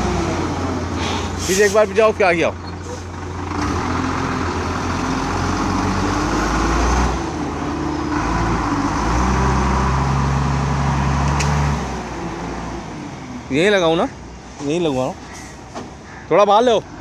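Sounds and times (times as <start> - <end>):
diesel crane engine revving: 0.0 - 13.5.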